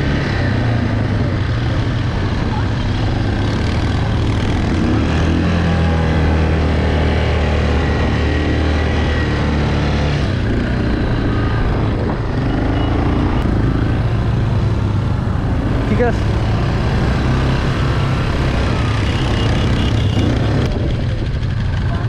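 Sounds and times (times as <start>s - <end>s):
quad bike engines running: 0.0s - 22.0s.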